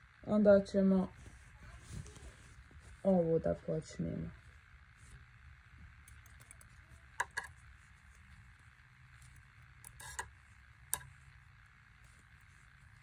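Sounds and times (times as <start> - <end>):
faint low hum: 0.0 - 13.0
knitting needles clicking: 6.0 - 7.6.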